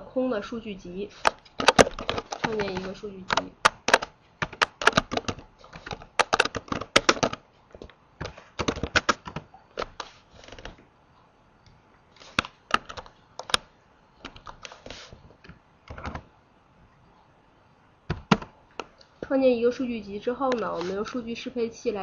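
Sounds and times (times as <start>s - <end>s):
typing on computer keyboard: 1.2s - 10.8s, 12.2s - 14.8s, 15.9s - 16.3s.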